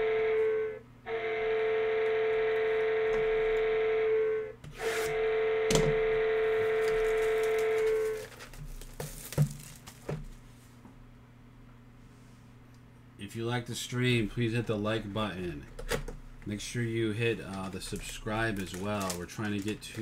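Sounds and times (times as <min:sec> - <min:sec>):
electronic horn blasts: 0:00.0 - 0:08.2.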